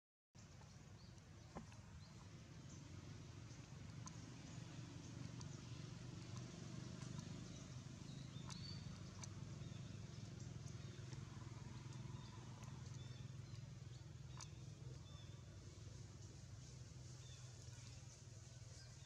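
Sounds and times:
low hum: 0.4 - 19.0.

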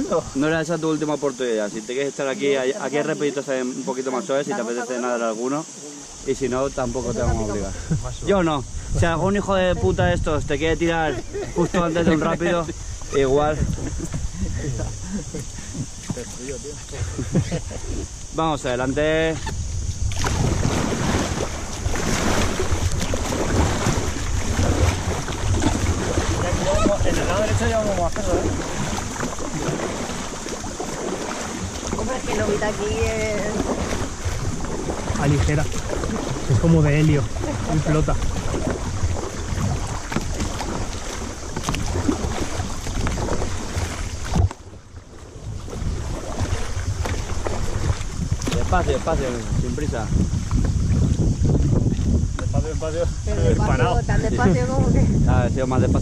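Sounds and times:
river water rushing and splashing: 0.0 - 17.0, 17.8 - 52.2
paddles in water: 0.0 - 56.0
wind buffeting microphone: 6.2 - 56.0.

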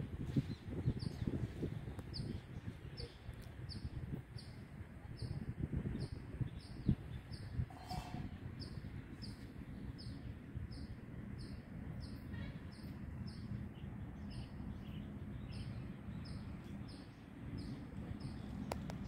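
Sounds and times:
steady low rumble: 12.8 - 19.0.

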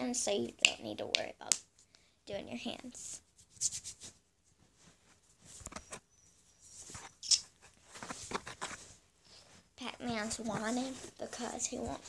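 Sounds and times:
scuffing and rubbing noises: 3.3 - 6.0, 6.6 - 12.0.

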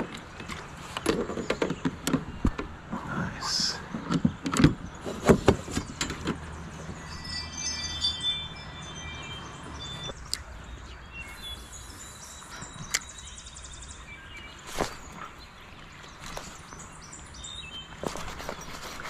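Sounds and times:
high whistling tones: 6.9 - 10.2.

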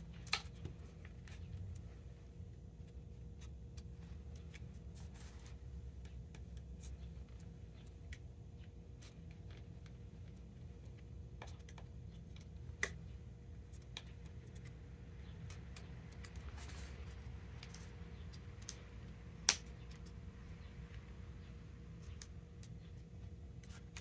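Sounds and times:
small plastic clicks and taps: 10.8 - 16.5.

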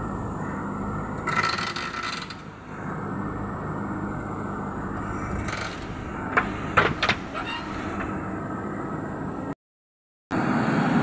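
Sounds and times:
diesel engine under load: 0.0 - 9.6
grinding squeal from digging arm: 7.3 - 8.0.

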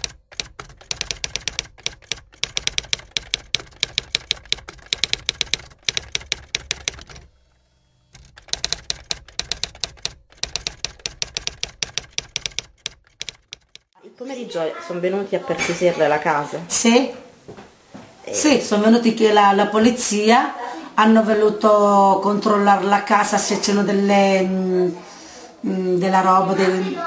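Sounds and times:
typewriter keys clacking: 0.0 - 7.3, 8.2 - 14.0.

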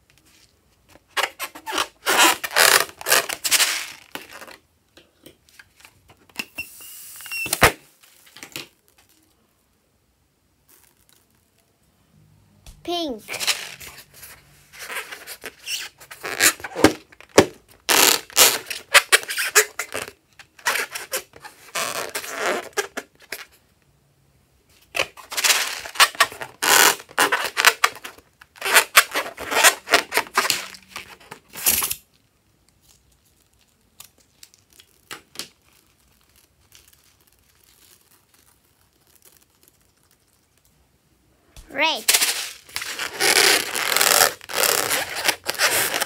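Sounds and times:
rubber balloon squeaking: 1.1 - 4.6, 6.4 - 7.8, 14.8 - 23.1, 25.3 - 31.5, 41.8 - 46.0.

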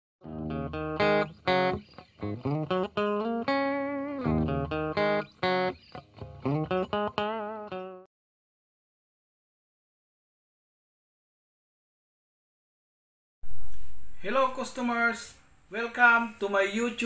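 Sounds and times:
plucked and strummed guitar: 0.2 - 8.1.

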